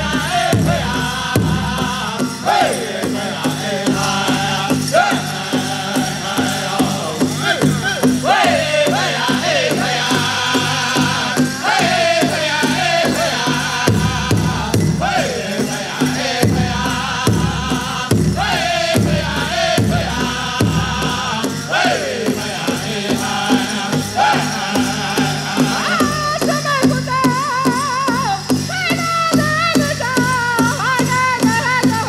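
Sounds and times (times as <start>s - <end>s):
big drum beat: 0.0s - 32.0s
high voices singing: 0.0s - 32.0s.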